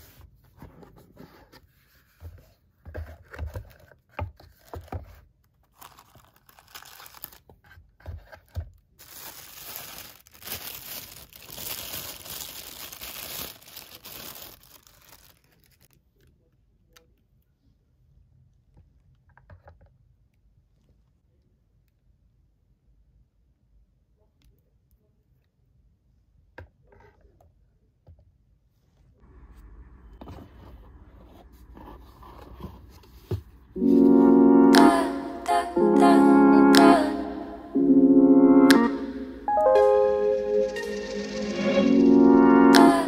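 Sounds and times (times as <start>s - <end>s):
paper rustling and crinkling: 0.0s - 16.0s.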